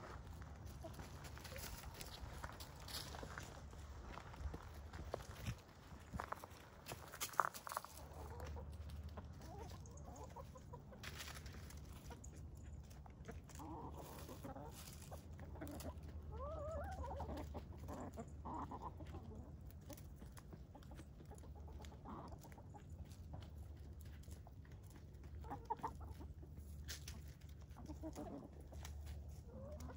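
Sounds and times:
chickens clucking: 0.0s - 29.9s
chicken wavering calls: 7.5s - 23.7s.

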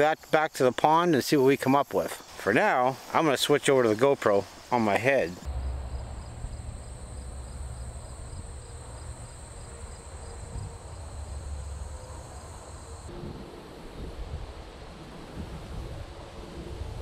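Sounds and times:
crickets trilling: 0.0s - 13.1s
wind rumbling on microphone: 5.4s - 17.0s.

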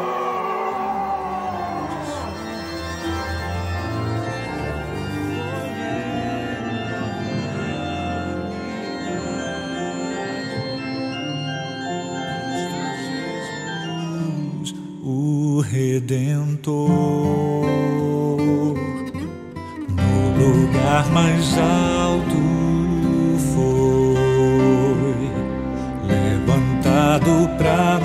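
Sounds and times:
sustained organ chords: 0.0s - 15.1s, 20.0s - 28.0s.

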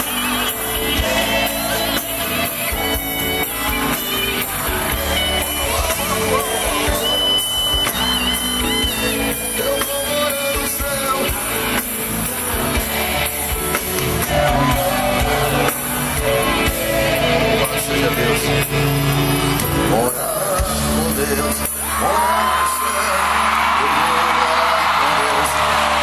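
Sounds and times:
gospel band playing: 0.0s - 26.0s
man singing into microphone: 9.0s - 26.0s.

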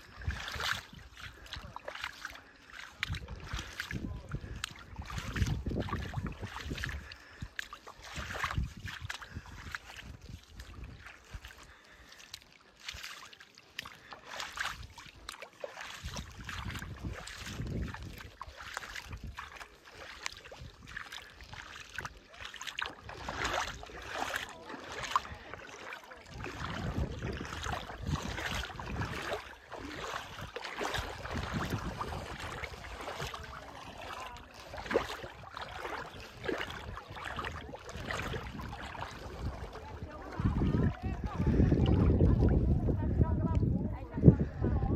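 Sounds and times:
wind buffeting microphone: 0.0s - 2.0s, 2.9s - 12.0s, 15.9s - 19.6s, 26.2s - 44.9s.

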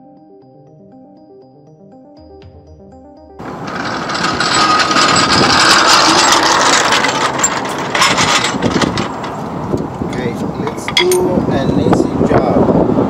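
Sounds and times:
engine noise: 3.4s - 12.2s.

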